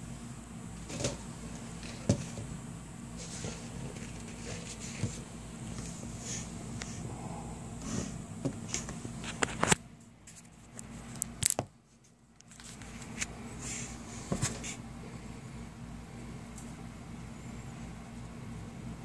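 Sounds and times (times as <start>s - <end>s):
steady low hum: 0.0s - 19.0s
rustling: 3.1s - 6.5s.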